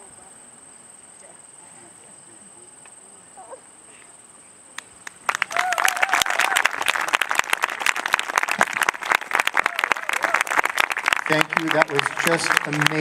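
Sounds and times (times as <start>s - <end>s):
audience applause: 5.0s - 13.0s
person cheering: 5.4s - 7.1s, 9.5s - 10.6s.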